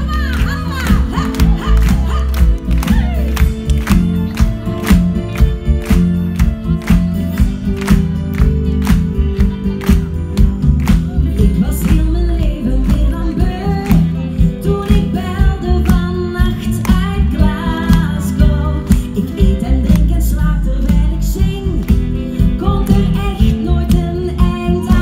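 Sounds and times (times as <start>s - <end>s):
heavy bass: 0.0s - 25.0s
women singing into microphones: 11.4s - 25.0s.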